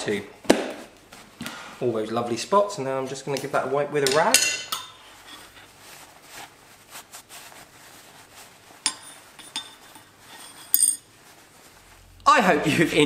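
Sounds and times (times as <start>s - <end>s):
rag rubbing on steel: 5.0s - 11.0s.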